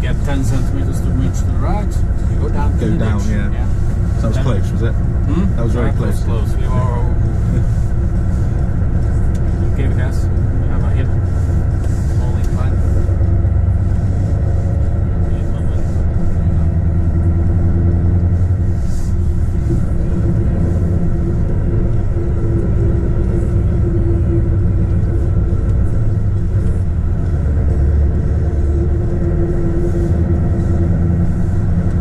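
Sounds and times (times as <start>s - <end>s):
truck diesel engine rumbling: 0.0s - 32.0s.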